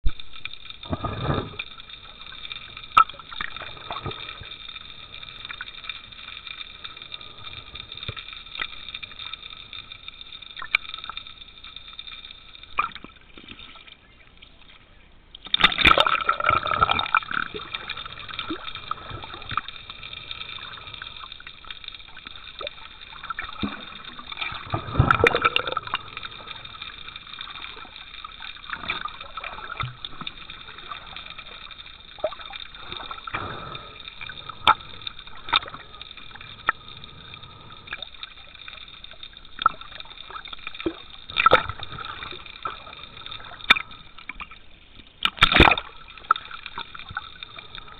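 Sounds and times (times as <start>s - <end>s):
water gurgling underwater: 0.0s - 11.6s, 15.4s - 47.9s
splashing and bubbling: 0.0s - 14.2s, 15.4s - 47.9s
small clicks: 0.1s - 14.5s.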